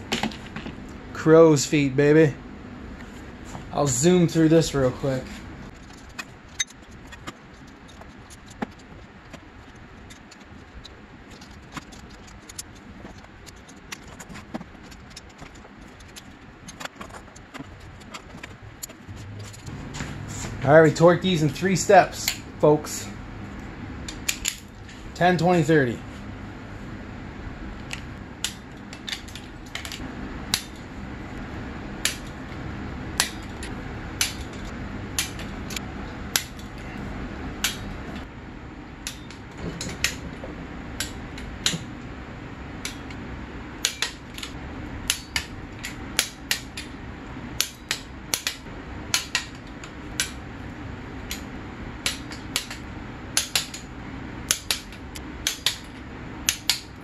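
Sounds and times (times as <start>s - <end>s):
torque wrench clicking: 54.5s - 55.9s.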